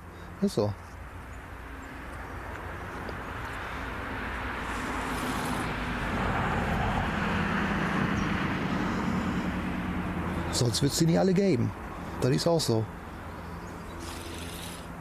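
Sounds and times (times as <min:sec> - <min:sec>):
approaching vehicle engine: 0:02.8 - 0:11.0.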